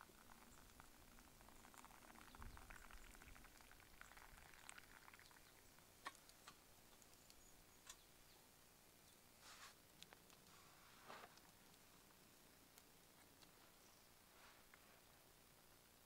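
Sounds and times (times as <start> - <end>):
water trickling into a cup: 0.0 - 7.8
faint sharp clicks: 0.2 - 8.1.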